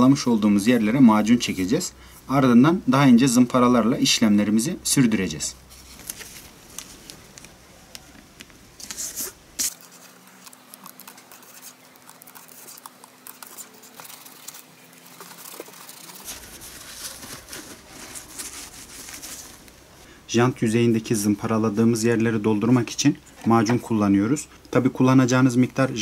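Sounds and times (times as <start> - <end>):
cloth rustling: 5.7 - 7.5, 13.7 - 20.1
paper crinkling: 5.7 - 20.0
masking tape tearing: 8.8 - 19.4.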